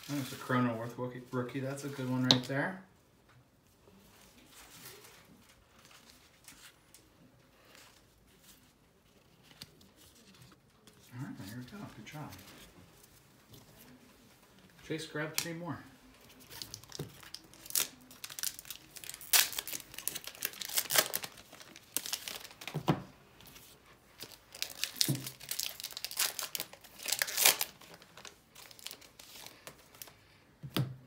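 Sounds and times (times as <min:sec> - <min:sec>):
card pack wrappers crinkling and tearing: 0:15.3 - 0:30.2.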